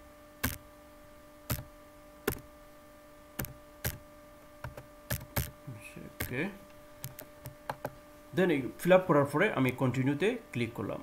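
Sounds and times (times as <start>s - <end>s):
faint electrical hum: 0.0s - 11.0s
keyboard key clicks: 3.4s - 4.0s.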